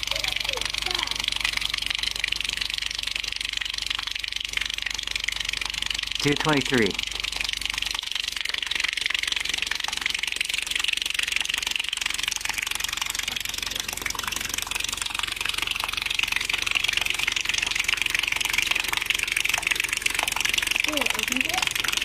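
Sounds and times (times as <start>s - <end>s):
hose water running and splashing: 0.0s - 22.0s.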